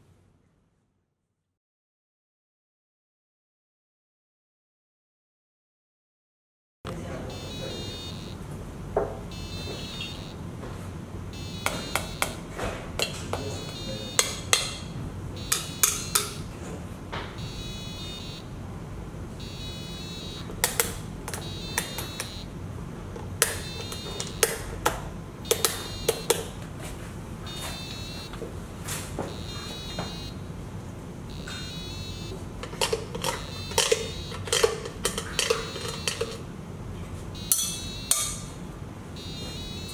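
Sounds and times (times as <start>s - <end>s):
steady room hum: 6.9s - 39.9s
rapid electronic chirping: 7.3s - 8.4s, 9.3s - 10.4s, 11.3s - 12.4s, 13.4s - 16.4s, 17.4s - 18.5s, 19.4s - 22.6s, 23.4s - 24.5s, 25.4s - 26.5s, 27.5s - 28.3s, 29.3s - 30.5s, 31.3s - 32.4s, 33.3s - 34.5s, 37.4s - 38.2s, 39.2s - 39.9s.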